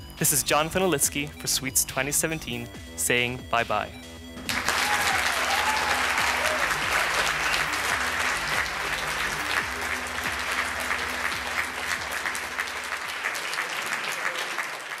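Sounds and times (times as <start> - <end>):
audience applauding: 4.5 - 15.0.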